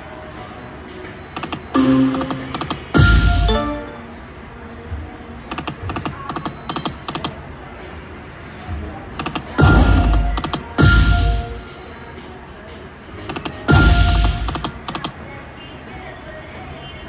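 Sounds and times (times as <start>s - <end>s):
electronic chime tones: 1.8s - 4.2s, 13.7s - 14.5s
slot machine sound effects: 1.8s - 4.3s, 9.6s - 11.8s, 13.7s - 14.8s.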